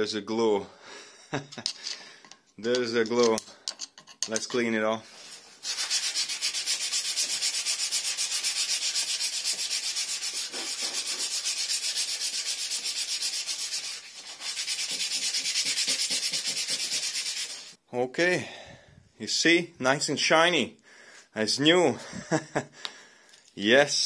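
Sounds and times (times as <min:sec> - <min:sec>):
sandpaper scrubbing on steel: 0:05.1 - 0:17.8.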